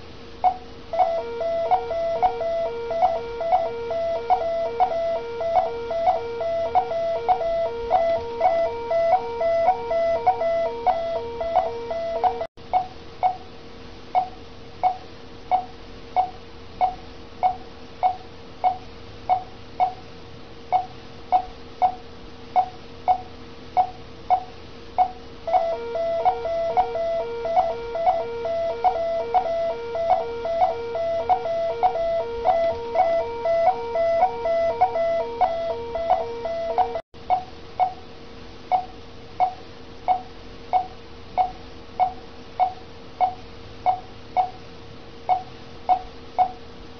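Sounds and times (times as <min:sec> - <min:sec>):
patient monitor beeping: 0:00.4 - 0:13.4, 0:23.8 - 0:37.0
repeating alarm tone: 0:00.5 - 0:12.5, 0:25.5 - 0:37.0.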